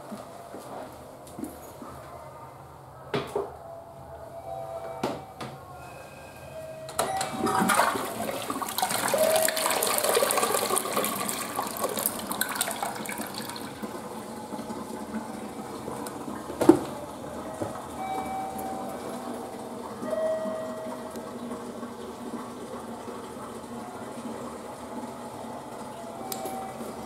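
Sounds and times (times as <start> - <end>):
toilet flushing: 6.2 - 27.0.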